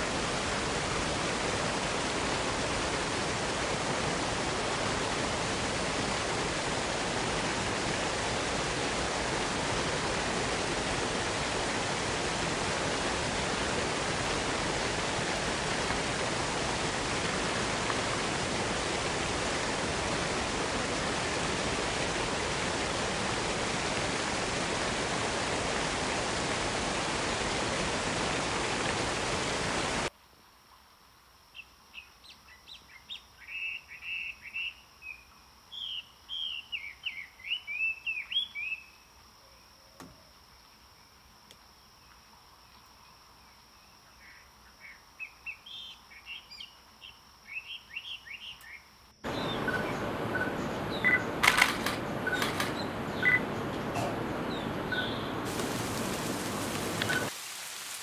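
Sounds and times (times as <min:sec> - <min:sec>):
steady rain: 0:00.0 - 0:31.2, 0:49.2 - 0:58.0
faint high whine: 0:34.7 - 0:57.3
small birds twittering: 0:44.2 - 0:57.3
sharp clicks: 0:51.4 - 0:52.8.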